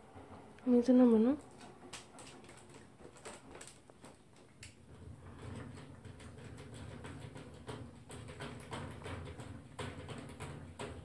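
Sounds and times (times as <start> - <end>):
dog clicking in wire crate: 1.5 - 4.8.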